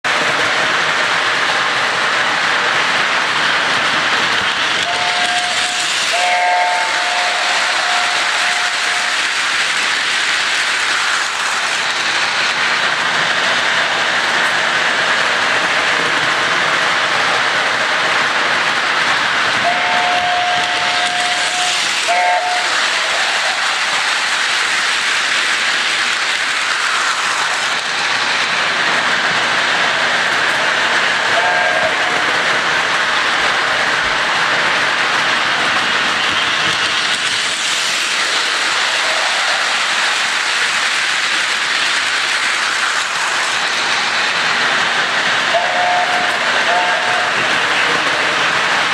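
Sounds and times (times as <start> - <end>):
model steam locomotive hissing: 0.1 - 48.9
train whistle blasts: 4.8 - 9.2, 19.6 - 23.6, 31.4 - 32.1, 45.5 - 47.4.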